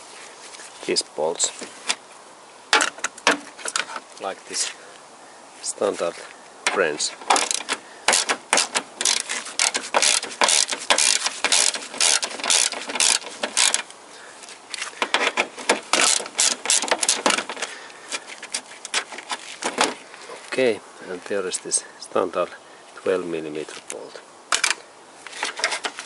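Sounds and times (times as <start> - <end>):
ratchet wrench clicking: 7.3 - 13.9, 15.9 - 17.6.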